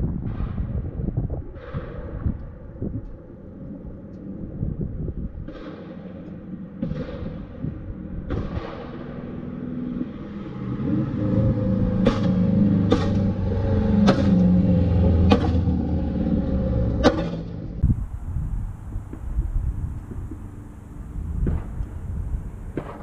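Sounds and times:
sharp exhaust pops: 5.4 - 16.1, 16.7 - 23.0
car engine driving past: 8.8 - 17.9.

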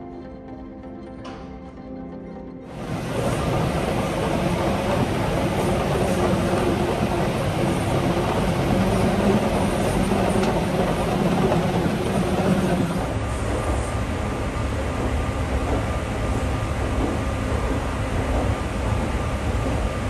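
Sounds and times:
terminal corridor hum: 0.0 - 20.0
airport apron rumble: 2.7 - 13.1
moving walkway rumble: 2.7 - 20.0.

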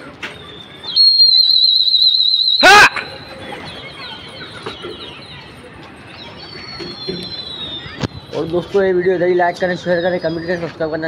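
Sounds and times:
shrill warbling whistles: 0.3 - 4.6, 6.4 - 8.0.

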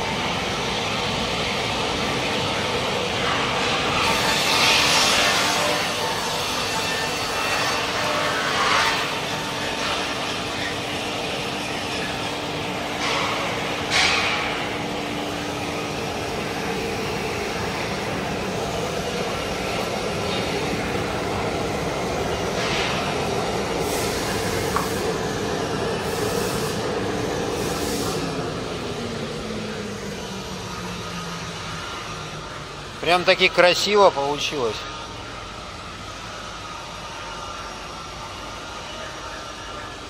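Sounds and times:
motors and circular saws humming: 0.0 - 40.0
hissing bursts from saw cut: 23.8 - 25.3, 26.0 - 28.4.

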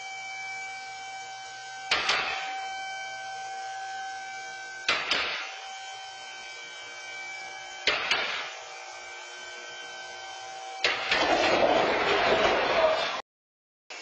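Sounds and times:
sharp metal bangs: 1.9 - 2.6, 4.9 - 5.5, 7.8 - 8.6.

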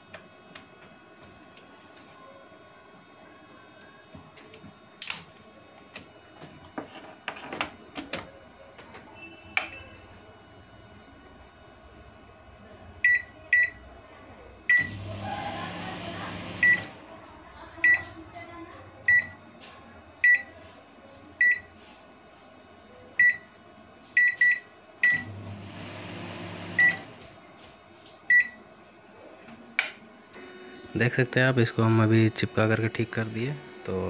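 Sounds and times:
microwave running hum: 0.0 - 34.0
microwave keypad beeps: 13.0 - 13.8, 14.7 - 15.2, 15.9 - 17.0, 17.8 - 18.0, 19.1 - 19.4, 20.2 - 20.5, 21.4 - 21.7, 23.2 - 23.5, 24.2 - 27.2, 28.3 - 28.6.

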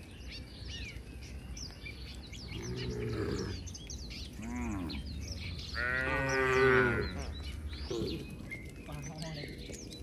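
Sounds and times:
small birds chirping: 0.0 - 10.0
cattle mooing: 4.4 - 7.3.

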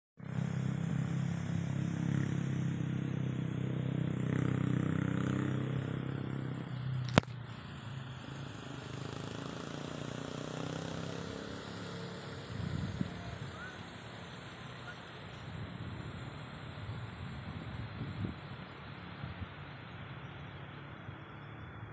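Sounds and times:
small engine humming: 0.2 - 21.9
sharp click: 7.0 - 7.4.

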